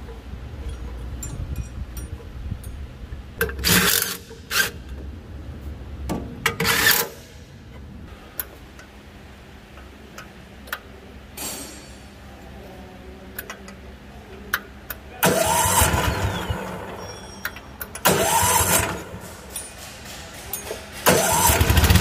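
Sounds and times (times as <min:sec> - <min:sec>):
tools and metal parts clicking: 0:00.0 - 0:05.0, 0:06.2 - 0:07.8, 0:17.0 - 0:21.6.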